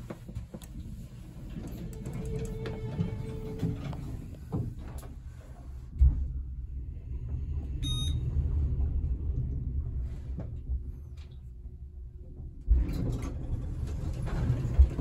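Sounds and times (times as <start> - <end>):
elevator low rumble: 0.0 - 15.0
elevator door closing: 1.2 - 5.2, 12.6 - 15.0
short electronic beep: 7.8 - 8.2.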